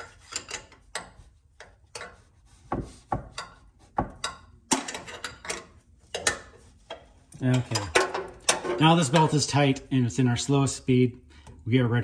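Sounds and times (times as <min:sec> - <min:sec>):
wrench clicking and knocking on metal: 0:00.2 - 0:02.2, 0:03.2 - 0:09.4.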